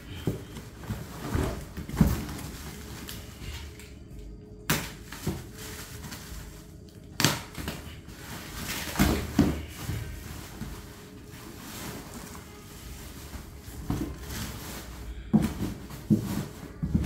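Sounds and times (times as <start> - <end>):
cardboard box rustling and knocking: 0.0 - 3.0, 8.3 - 11.0, 13.1 - 17.0.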